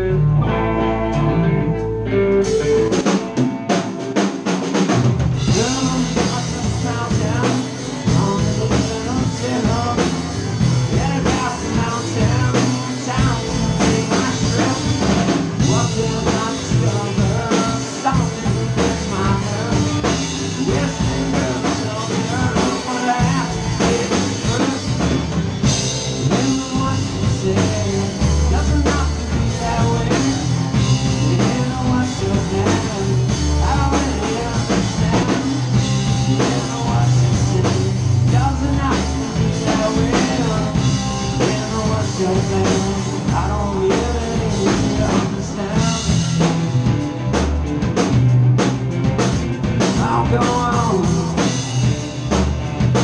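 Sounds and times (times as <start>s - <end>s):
heavy bass notes: 0.0s - 53.0s
rock band playing live: 0.0s - 53.0s
person singing: 5.4s - 25.4s, 26.3s - 46.5s, 49.8s - 51.9s.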